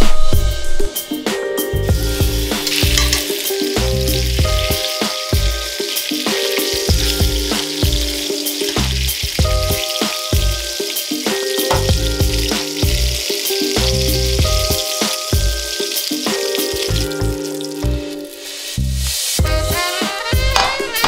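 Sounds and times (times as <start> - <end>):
background music with a beat: 0.0 - 21.0
meat sizzling in hot oil: 1.8 - 21.0.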